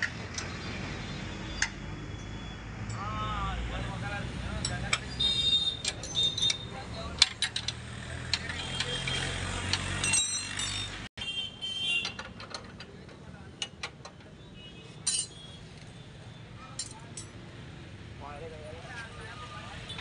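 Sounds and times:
metallic clicks and knocks: 5.8 - 11.0, 12.0 - 14.4.

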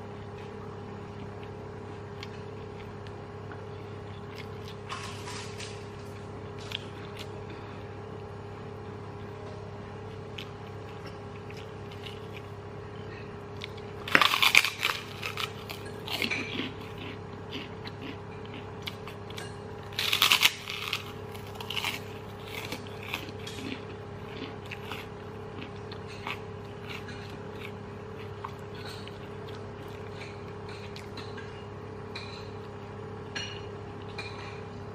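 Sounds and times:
soft crunching while chewing: 0.0 - 34.9
steady low hum: 0.0 - 34.9
loud crunch of cracker bite: 13.6 - 18.0, 19.9 - 29.0.

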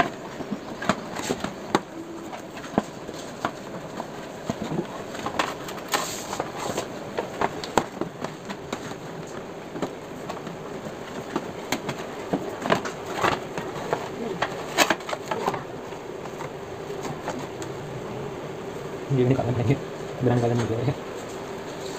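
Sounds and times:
steady hum: 0.0 - 21.9.

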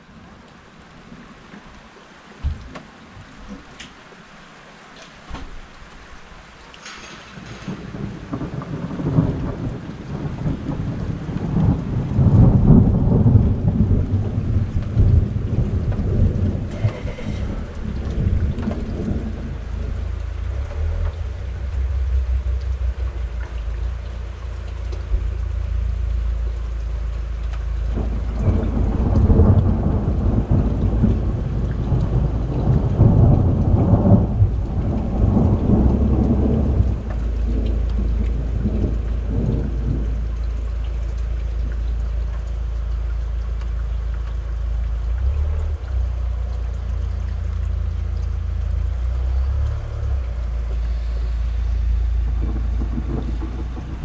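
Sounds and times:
steady rain: 0.0 - 54.0
thunder rumbling: 6.8 - 42.3, 48.9 - 54.0.

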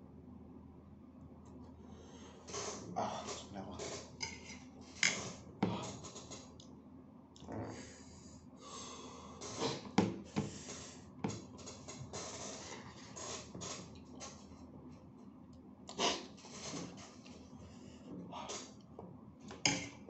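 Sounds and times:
breathing: 1.8 - 3.4, 7.6 - 9.6, 10.2 - 11.0, 17.5 - 18.7.

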